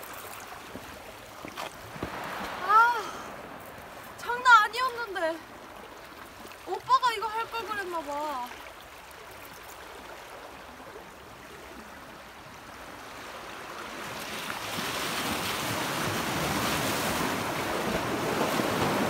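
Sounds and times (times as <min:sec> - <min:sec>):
waves washing over rocks: 0:01.7 - 0:08.6, 0:12.8 - 0:19.0.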